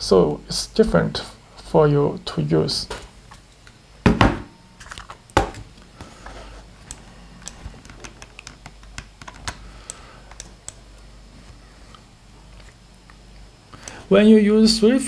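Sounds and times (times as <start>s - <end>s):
louder knocks: 4.0s - 4.5s
keyboard and mouse clicks: 6.8s - 10.8s.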